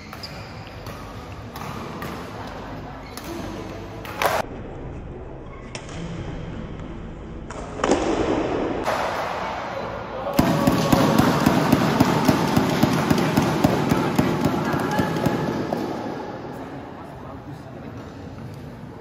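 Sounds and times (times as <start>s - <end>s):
crowd noise with sharp claps: 7.5s - 16.2s
murmuring hall noise: 8.8s - 19.0s.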